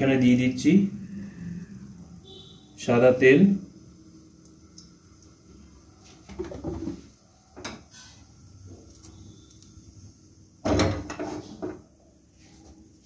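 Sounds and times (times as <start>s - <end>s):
pan knocking on stove: 10.6s - 11.8s
metal pan clattering and scraping: 10.7s - 11.7s.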